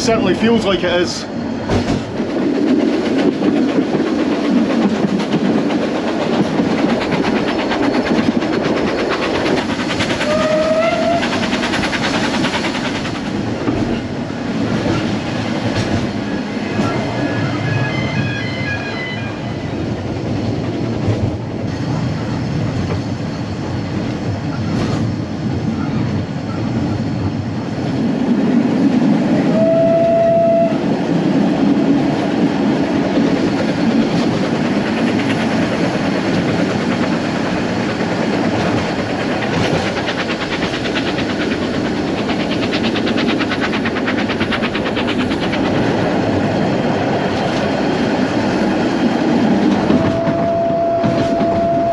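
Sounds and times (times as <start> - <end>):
train rumble and rail clatter: 0.0 - 51.9
steam whistle: 10.2 - 11.3, 29.5 - 30.8, 49.8 - 51.9.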